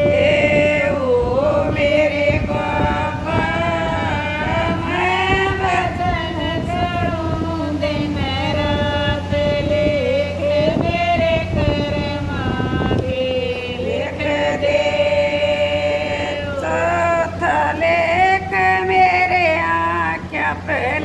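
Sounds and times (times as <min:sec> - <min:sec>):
women singing devotional song: 0:00.0 - 0:21.0.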